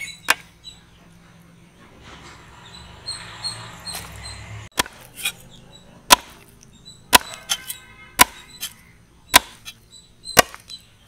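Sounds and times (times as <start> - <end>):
cleaver chopping on wooden block: 6.1 - 6.4, 7.1 - 7.6, 8.2 - 10.7.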